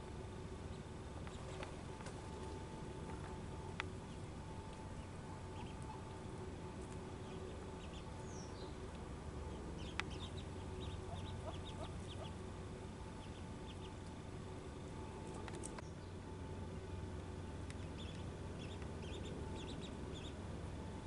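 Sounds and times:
ducklings peeping: 0:00.6 - 0:03.2, 0:03.8 - 0:14.1, 0:17.6 - 0:21.0.

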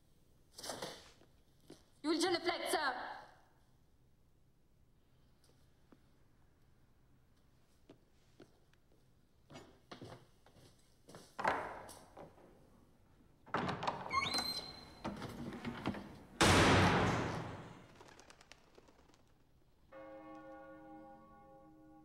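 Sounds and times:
footsteps on stone floor: 0:07.9 - 0:11.4
door squeak: 0:13.6 - 0:16.0
heavy door slamming: 0:13.6 - 0:17.8.

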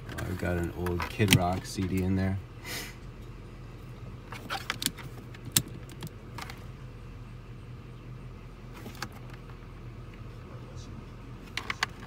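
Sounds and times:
steady low hum: 0:00.0 - 0:12.0
receiver control clicks: 0:00.1 - 0:02.1.

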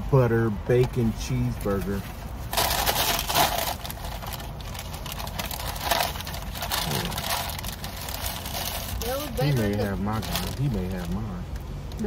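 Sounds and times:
paper wrapper crinkling: 0:02.0 - 0:11.2.

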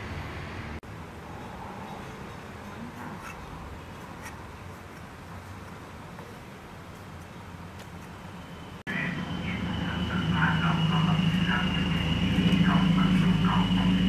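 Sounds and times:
thin high whine: 0:08.3 - 0:14.0.

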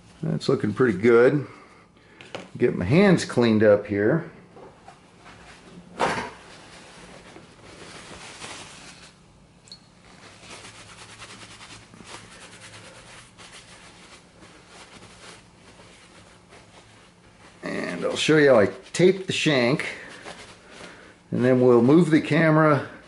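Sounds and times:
hands wiped with cloth: 0:06.4 - 0:09.2, 0:10.0 - 0:23.0.

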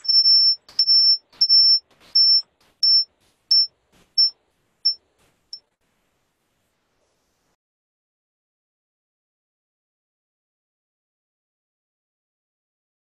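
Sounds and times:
high-pitched electronic beep: 0:00.0 - 0:04.3.

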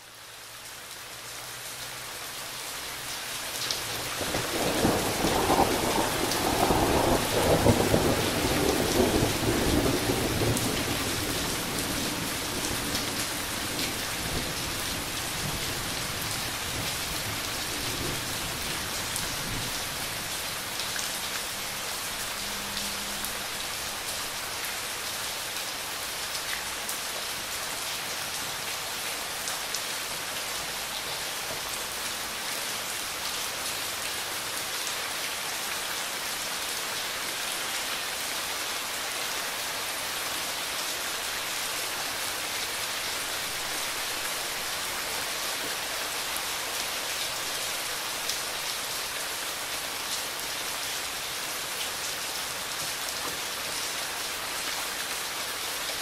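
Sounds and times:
steady rain falling: 0:00.0 - 0:56.0
thunder rumbling: 0:04.3 - 0:12.7.

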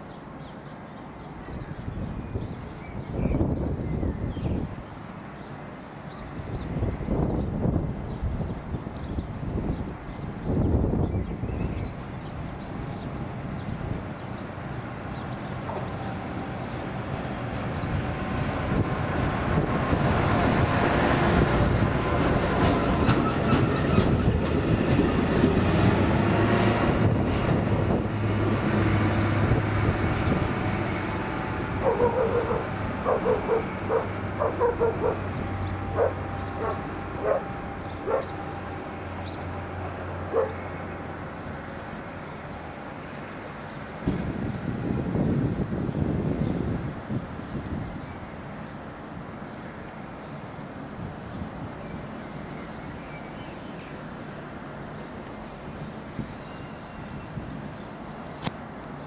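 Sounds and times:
wheels rumbling on rails: 0:06.3 - 0:59.0
dog barking: 0:31.8 - 0:35.3, 0:36.0 - 0:38.3, 0:40.3 - 0:40.6.

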